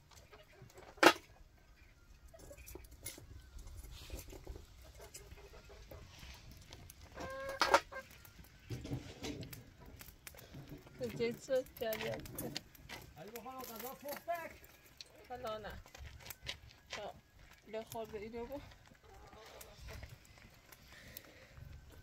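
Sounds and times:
chicken clucking: 1.6s - 8.3s, 19.0s - 20.1s.

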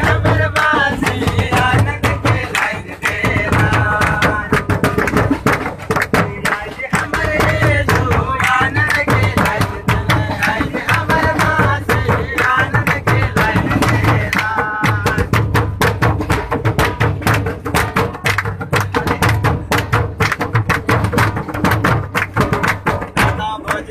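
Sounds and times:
group singing: 0.0s - 15.7s
barrel drum: 0.0s - 23.9s
kettledrum beaten with sticks: 0.0s - 23.9s.

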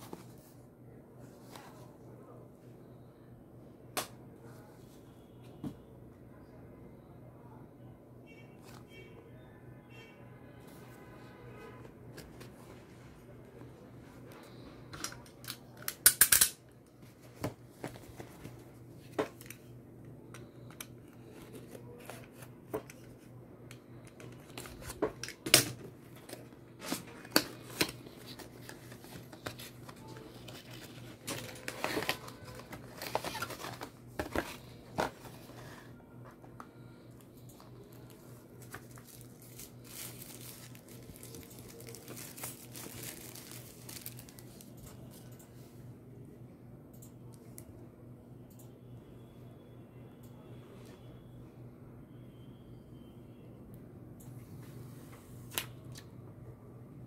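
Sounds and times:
steady low hum: 16.6s - 55.5s
packaging crinkling and tearing: 26.3s - 35.6s, 37.8s - 44.7s.

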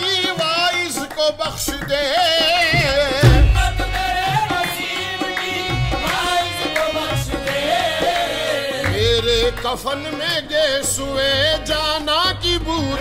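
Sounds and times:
tabla drumming: 0.0s - 13.0s
ornamented vocal melody: 1.4s - 13.0s.

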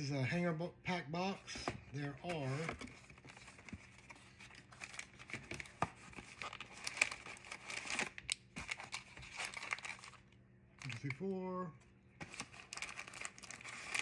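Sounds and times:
cardboard box crinkling and tearing: 2.2s - 10.2s, 12.2s - 14.0s.

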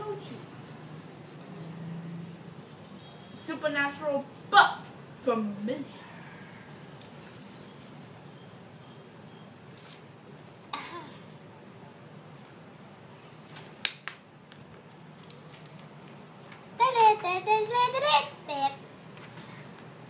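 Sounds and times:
marker scratching on paper: 0.0s - 4.9s, 6.5s - 9.0s.

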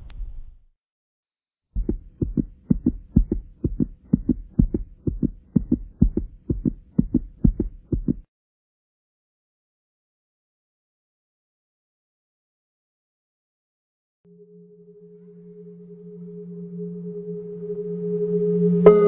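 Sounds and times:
low rumble: 0.0s - 0.7s
low double thumps: 1.8s - 8.2s.

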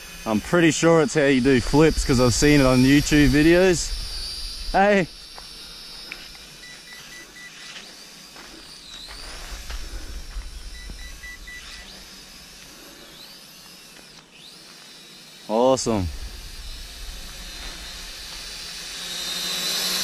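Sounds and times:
toy quadcopter motors whining: 0.0s - 20.0s
high beeps: 6.6s - 7.7s, 10.6s - 11.9s.

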